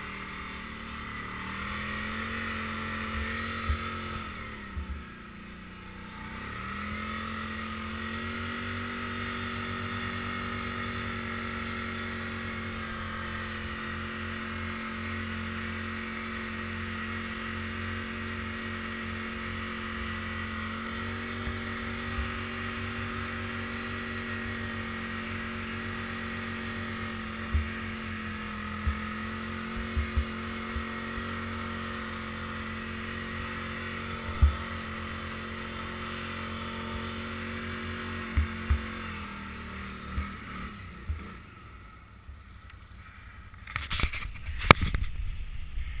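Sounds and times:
atv engine running: 0:00.0 - 0:46.0
low thumps from bumps: 0:28.8 - 0:31.0, 0:34.3 - 0:34.6, 0:38.4 - 0:39.0.

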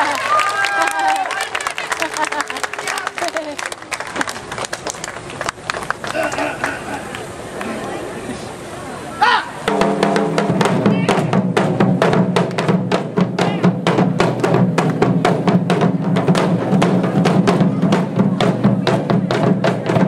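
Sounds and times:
taiko drums playing fast rhythm: 0:09.7 - 0:20.0.

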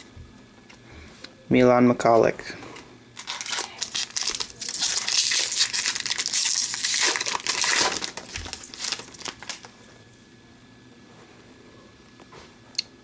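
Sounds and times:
card pack wrapper crinkling: 0:03.2 - 0:09.7.

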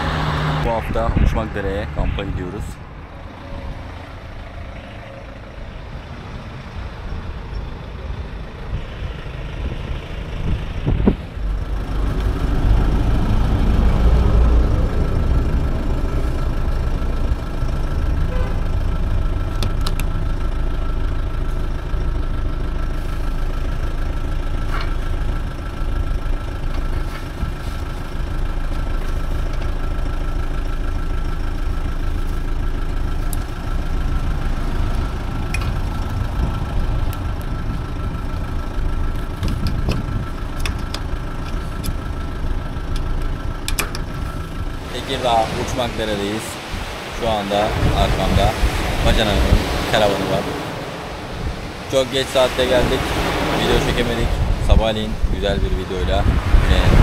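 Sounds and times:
vehicle engine and road rumble: 0:00.0 - 0:57.0.

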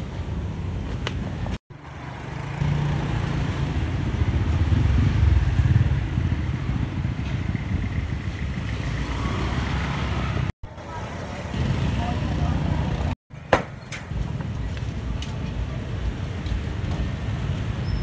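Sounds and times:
motor vehicle engine running: 0:01.8 - 0:13.2.

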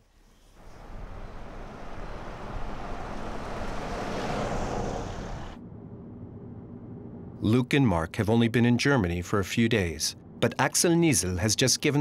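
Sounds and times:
car passing on brick road: 0:00.6 - 0:05.6
road hum inside car cabin: 0:00.6 - 0:05.6.

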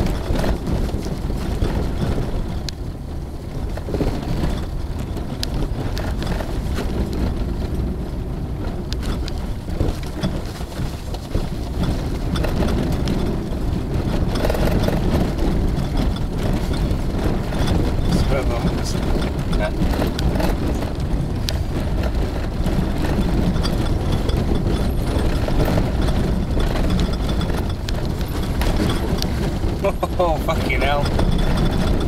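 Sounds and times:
vehicle engine and tyre rumble: 0:00.0 - 0:32.0
sharp rattles or knocks: 0:08.6 - 0:32.0.

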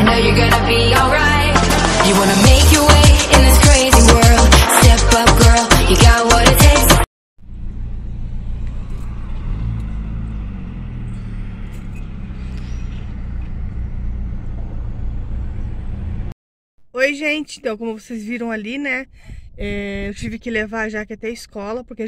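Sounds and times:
car driving past: 0:07.4 - 0:16.4
low car engine hum: 0:07.4 - 0:16.4.

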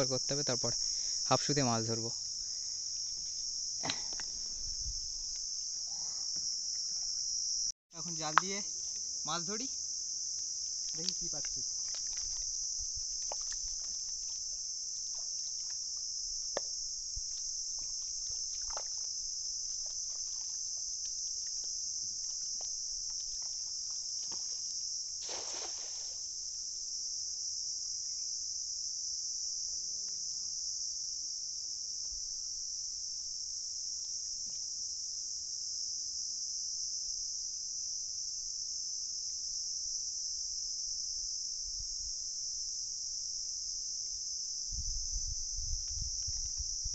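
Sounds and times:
insects chorus: 0:00.0 - 0:46.9
cast net landing on water: 0:25.2 - 0:26.2.

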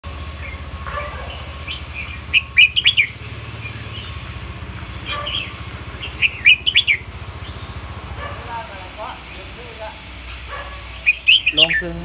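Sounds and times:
bulbul singing whistled notes: 0:01.4 - 0:04.3, 0:05.2 - 0:07.8, 0:10.9 - 0:12.0.

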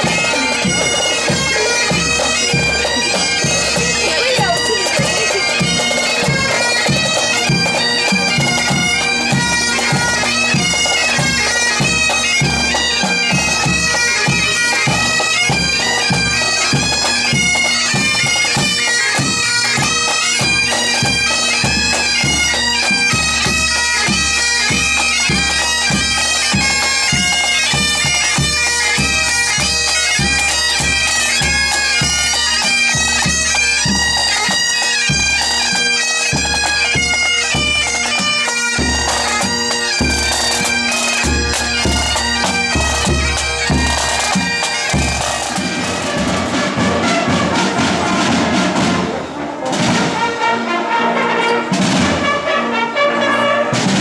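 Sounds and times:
drum beat: 0:00.0 - 0:19.9, 0:38.8 - 0:49.0
bagpipes playing over drone: 0:00.0 - 0:54.0.

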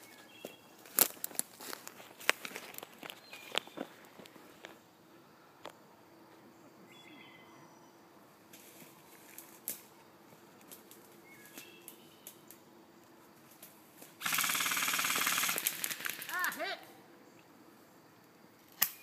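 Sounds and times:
bird chirps: 0:03.2 - 0:04.0, 0:06.9 - 0:08.0, 0:11.2 - 0:12.4
airsoft rifle full-auto fire: 0:14.2 - 0:16.3.

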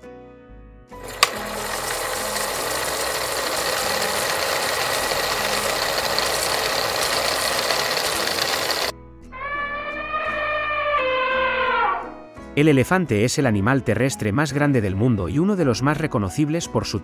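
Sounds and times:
mechanical whirring sound effect: 0:01.0 - 0:08.9.

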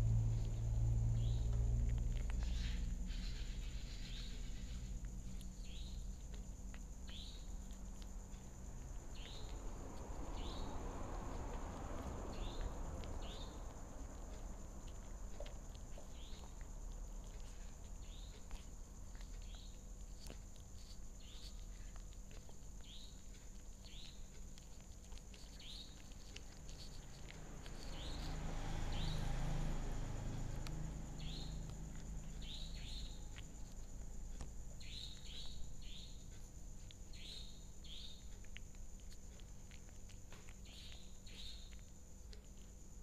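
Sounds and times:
low rumble: 0:00.0 - 0:19.2
kitten chewing clicks: 0:00.0 - 0:43.0.

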